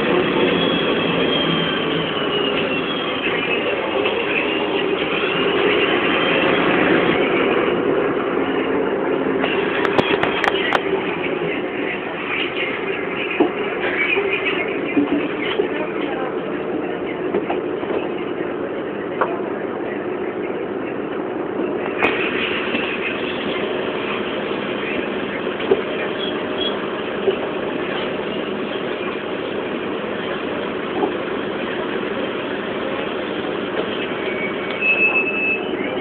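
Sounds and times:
bus engine and road noise: 0:00.0 - 0:36.0
bus body knocking and rattling: 0:09.4 - 0:11.0.

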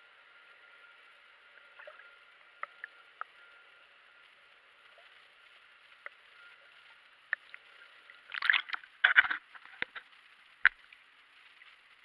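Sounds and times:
faint steady hiss: 0:00.0 - 0:12.0
water splashing and sloshing: 0:04.4 - 0:12.0.

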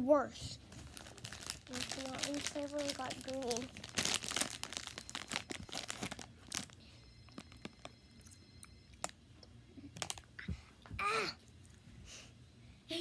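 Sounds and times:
candy wrapper crinkling: 0:00.7 - 0:08.0, 0:10.0 - 0:10.3.

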